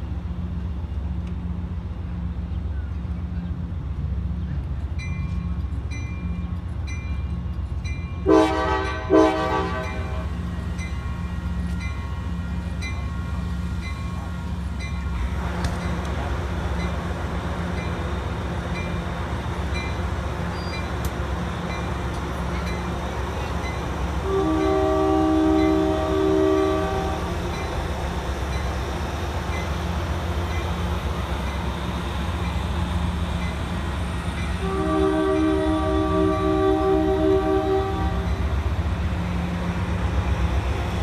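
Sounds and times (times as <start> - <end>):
train rumbling: 0.0 - 41.0
train air horn chord: 8.2 - 10.3, 24.2 - 27.3, 34.6 - 38.3.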